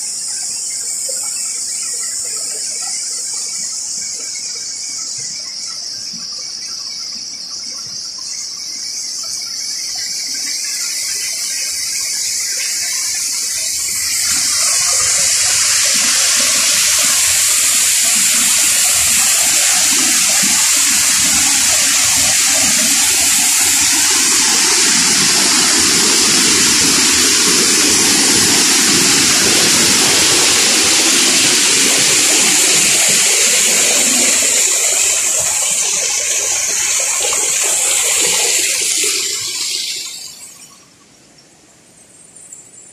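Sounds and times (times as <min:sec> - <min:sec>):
insects trilling: 0:00.0 - 0:42.9
waterfall rushing over rock: 0:12.6 - 0:40.6.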